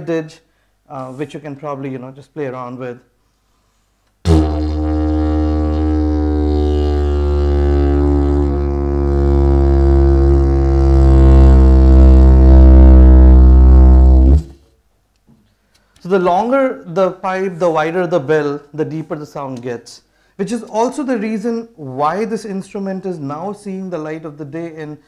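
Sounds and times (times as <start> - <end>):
didgeridoo drone: 4.3 - 14.5.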